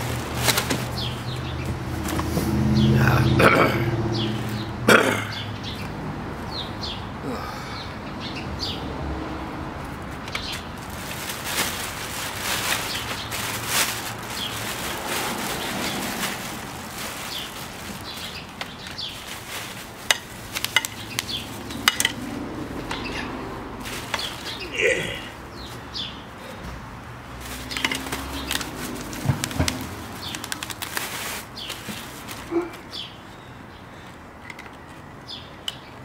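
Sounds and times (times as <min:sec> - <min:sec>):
plastic wrapping crinkling: 0:00.0 - 0:01.5, 0:10.4 - 0:22.2, 0:23.8 - 0:25.0, 0:27.4 - 0:32.8
birds chirping: 0:00.0 - 0:09.0, 0:10.2 - 0:36.0.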